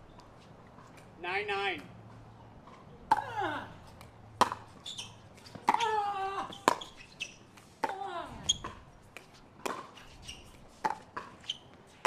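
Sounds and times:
shoes squealing on court: 4.5 - 7.6, 8.4 - 8.8, 9.7 - 12.0.

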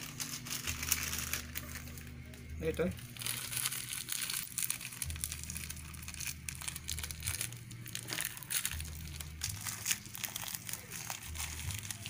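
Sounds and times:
plastic packet crinkling: 0.0 - 12.0.

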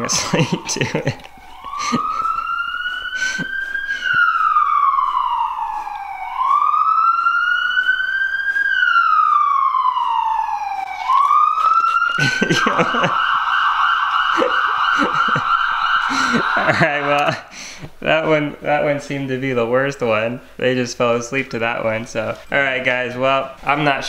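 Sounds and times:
ambulance siren from laptop speaker: 0.0 - 18.9.

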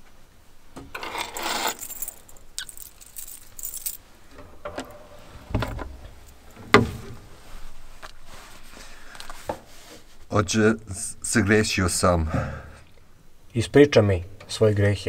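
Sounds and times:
rosary beads clinking: 1.2 - 4.0
dull thump: 5.5 - 7.3.

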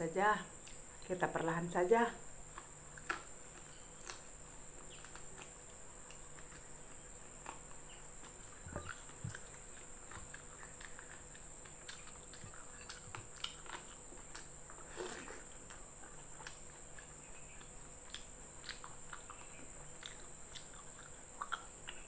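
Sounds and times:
steady high-pitched hiss: 0.0 - 22.0
chewing and mouth smacks: 2.4 - 22.0.

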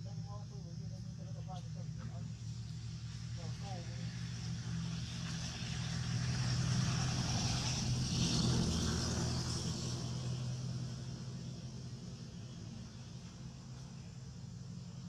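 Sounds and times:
vehicle engine passing by: 0.7 - 15.0.

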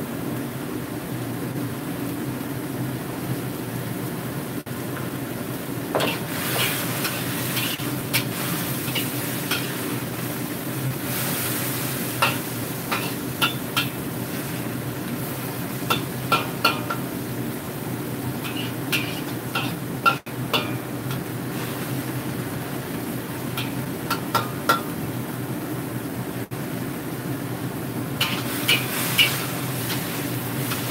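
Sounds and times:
vegetables sizzling in a wok: 0.0 - 30.9
metal spatula scraping wok: 6.0 - 10.3, 11.0 - 14.7, 18.4 - 22.0, 28.2 - 30.9.

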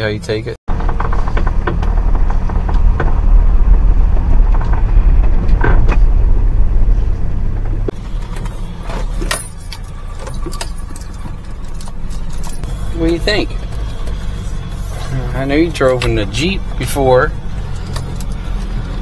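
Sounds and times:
deep engine rumble: 0.0 - 19.0
light rattles and knocks: 0.7 - 14.8.

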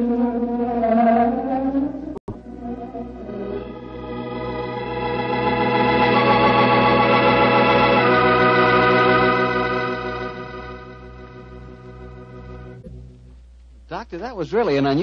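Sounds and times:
organ chords: 2.3 - 13.3.

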